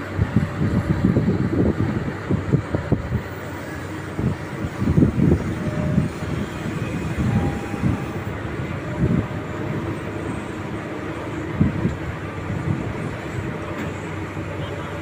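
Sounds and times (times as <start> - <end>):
excavator engine rumbling: 0.0 - 15.0.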